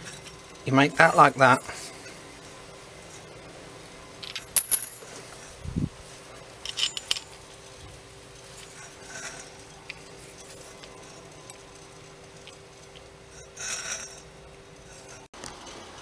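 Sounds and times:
metal clinking: 0:04.2 - 0:05.2, 0:06.6 - 0:07.4.

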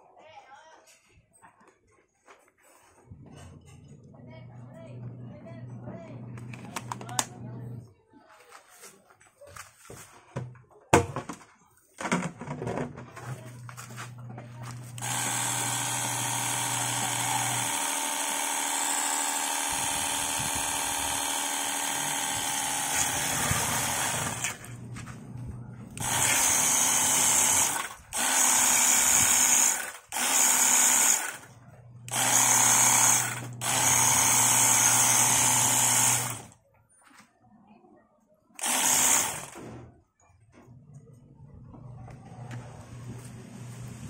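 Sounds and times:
pressure washer pump motor running: 0:14.6 - 0:25.1, 0:25.9 - 0:31.5, 0:32.1 - 0:36.5, 0:38.6 - 0:39.6.

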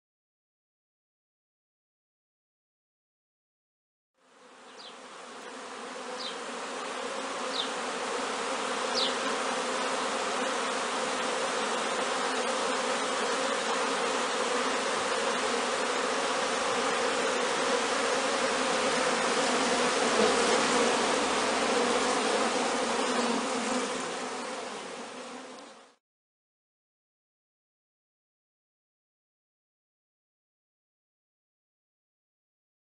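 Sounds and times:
bees buzzing: 0:04.2 - 0:26.0.

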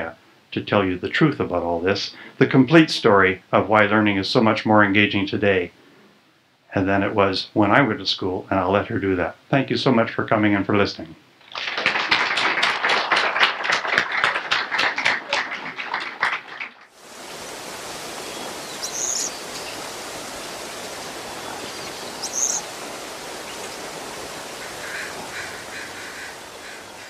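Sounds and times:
steady hiss: 0:00.0 - 0:27.0
audience applauding: 0:11.4 - 0:17.0
faint high chirps: 0:18.2 - 0:19.9, 0:20.7 - 0:22.8.

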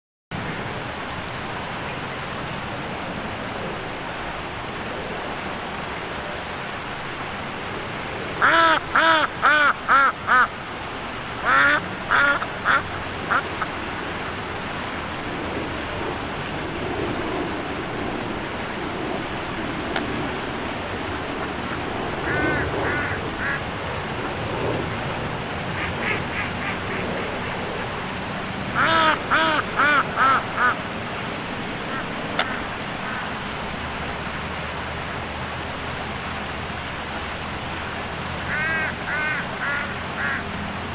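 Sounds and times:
steady background noise: 0:00.4 - 0:40.9
duck quacking: 0:08.4 - 0:10.5, 0:11.4 - 0:13.4, 0:22.2 - 0:23.6, 0:28.8 - 0:30.8, 0:31.9 - 0:33.2, 0:38.5 - 0:40.4.

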